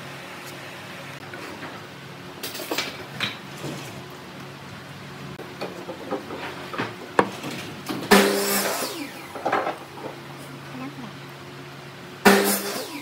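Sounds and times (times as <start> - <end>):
noisy sound with steady hum: 0.0 - 13.0.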